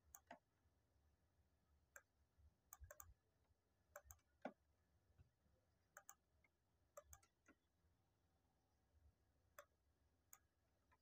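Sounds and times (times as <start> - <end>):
keyboard and mouse clicks: 0.0 - 0.4, 2.7 - 3.2, 4.0 - 4.6, 6.0 - 6.2, 7.0 - 7.6.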